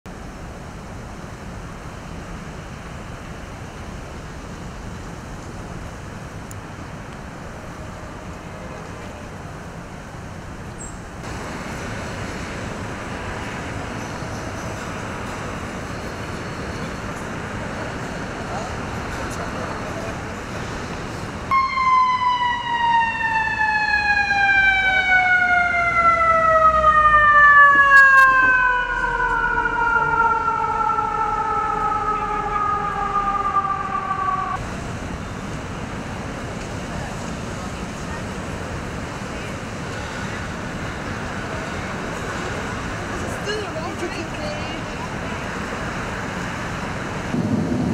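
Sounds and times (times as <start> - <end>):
bright street traffic noise: 0.1 - 47.9
low traffic rumble: 0.1 - 47.9
emergency siren falling tone: 21.5 - 34.8.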